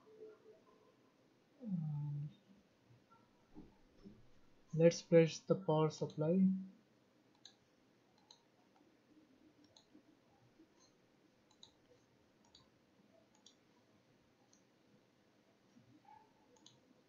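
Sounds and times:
faint room hiss: 0.0 - 17.0
computer mouse clicking: 7.3 - 7.6, 8.2 - 8.8, 9.6 - 10.0, 10.8 - 12.7, 13.3 - 13.6, 16.5 - 16.8.

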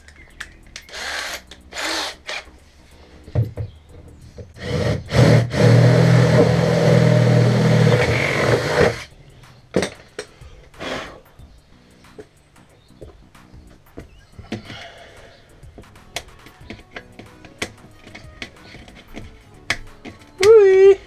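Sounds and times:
cordless drill drilling: 0.9 - 2.4, 4.6 - 9.1.

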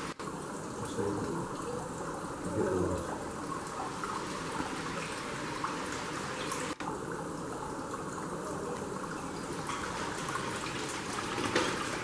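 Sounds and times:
running and trickling water: 0.0 - 12.0.

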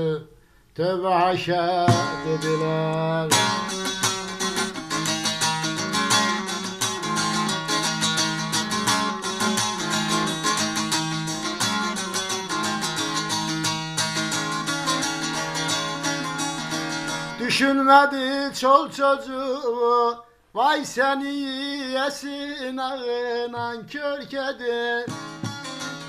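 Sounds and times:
saz strummed rapidly: 1.4 - 19.3, 23.4 - 26.0.

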